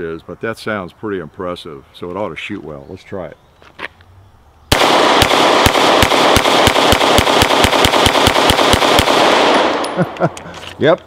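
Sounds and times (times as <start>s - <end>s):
pistol shots in rapid string: 4.7s - 10.1s.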